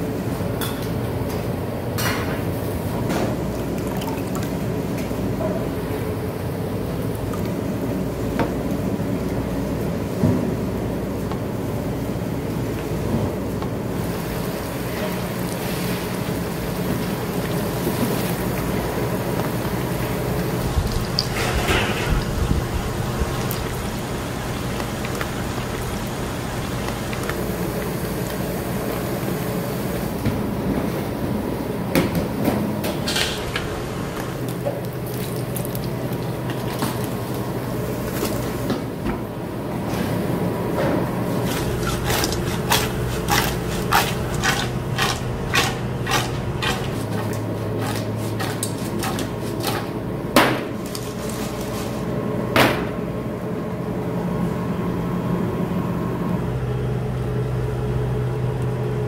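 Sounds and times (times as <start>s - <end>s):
kitchen range humming: 0.0s - 59.0s
fish frying in a wok: 13.9s - 30.2s, 41.3s - 49.8s.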